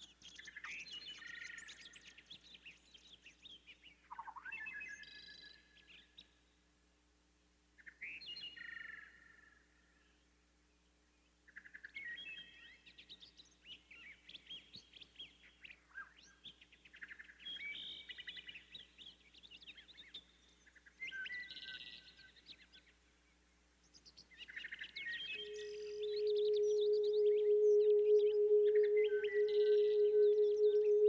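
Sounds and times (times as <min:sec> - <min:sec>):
songbirds chirping and twittering: 0:00.0 - 0:06.6, 0:10.0 - 0:31.0
steady ringing tone: 0:25.4 - 0:31.0.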